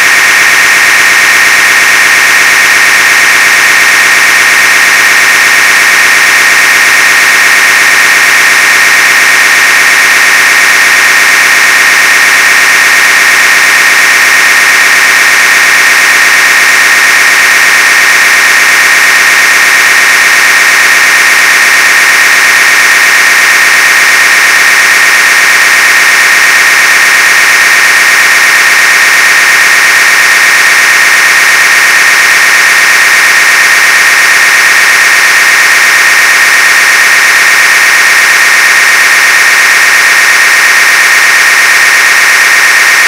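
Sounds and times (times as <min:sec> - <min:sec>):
high-pitched buzz: 0:00.0 - 0:25.8
loud static noise: 0:00.0 - 0:43.0.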